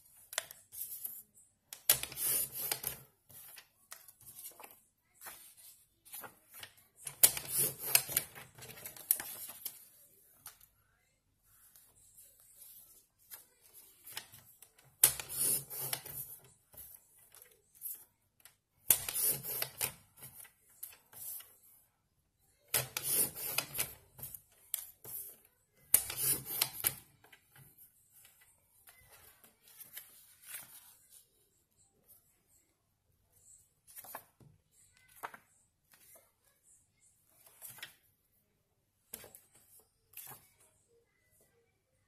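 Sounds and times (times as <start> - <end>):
paper rustling and rubbing: 2.0 - 10.0.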